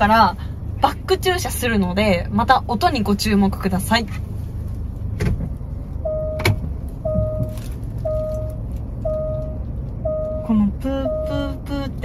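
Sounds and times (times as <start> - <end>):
low hum: 0.0 - 12.0
soft reverse warning beep: 6.0 - 11.8.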